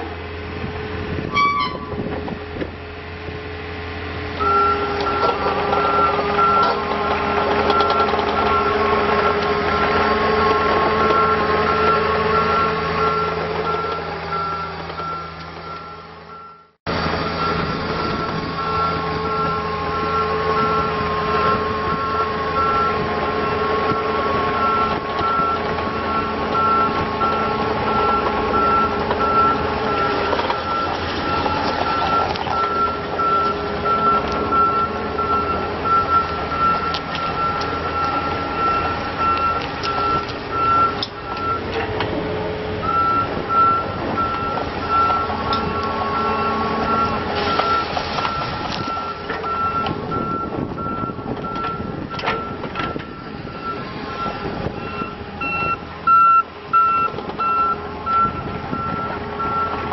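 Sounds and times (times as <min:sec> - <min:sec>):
excavator diesel engine running: 0:00.0 - 0:59.9
travel alarm beeping: 0:04.4 - 0:08.8, 0:11.0 - 0:16.7, 0:17.3 - 0:23.1, 0:24.6 - 0:41.7, 0:42.8 - 0:59.8.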